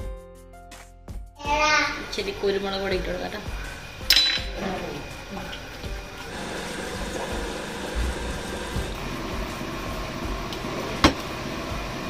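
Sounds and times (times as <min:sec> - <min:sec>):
glass lid clinking on pan: 0:04.1 - 0:04.5
hiss from cooking pan: 0:04.9 - 0:12.0.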